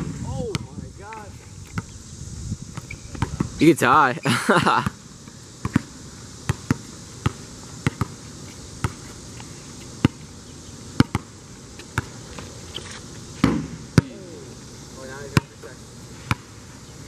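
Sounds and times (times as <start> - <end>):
basketballs bouncing on asphalt: 0.4 - 1.9, 2.7 - 3.6, 4.8 - 14.2, 15.3 - 16.6.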